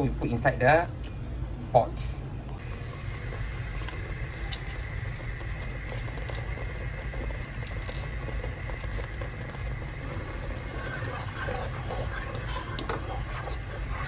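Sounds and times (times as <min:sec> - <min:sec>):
spatula scraping paste in pot: 0:09.9 - 0:14.0.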